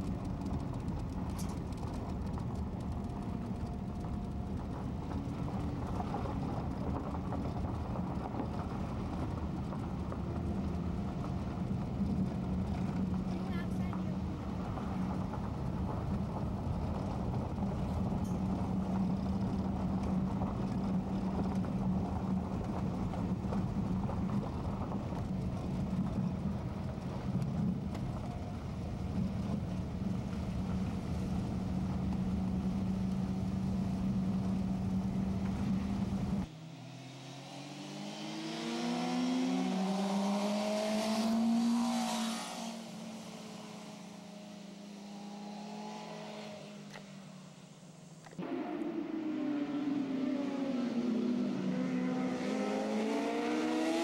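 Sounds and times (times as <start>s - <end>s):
car engine drone inside cabin: 0.0s - 54.0s
road noise: 0.0s - 54.0s
motorcycle accelerating past: 32.0s - 47.6s, 48.4s - 54.0s.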